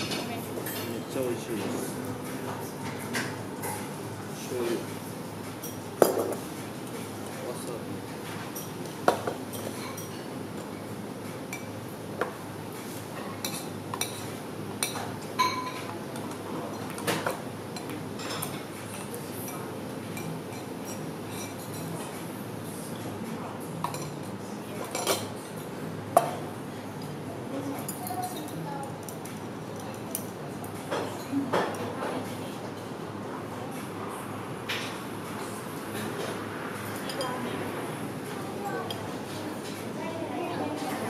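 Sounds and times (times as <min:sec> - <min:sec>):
utensils clinking on ceramic bowl: 0:05.6 - 0:06.5, 0:13.2 - 0:22.0, 0:23.8 - 0:25.4.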